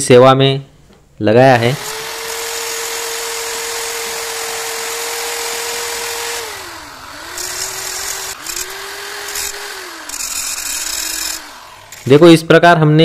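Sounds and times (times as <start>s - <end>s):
electric drill whining: 1.7s - 12.4s
cut-off wheel grinding metal: 1.7s - 12.5s.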